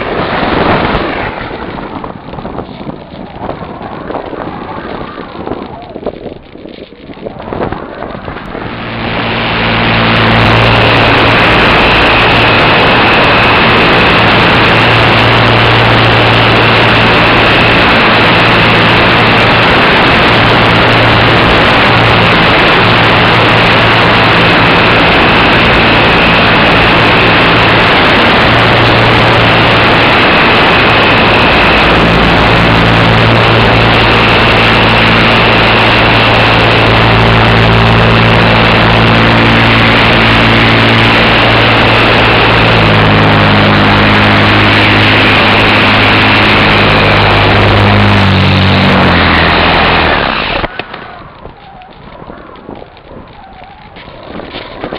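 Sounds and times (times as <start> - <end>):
electric model plane motor whining: 0.0 - 54.9.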